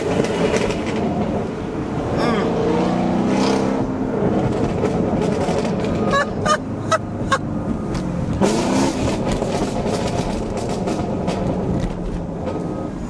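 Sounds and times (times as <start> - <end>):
car engine revving: 0.0 - 13.0
sharp exhaust pops: 7.9 - 12.6.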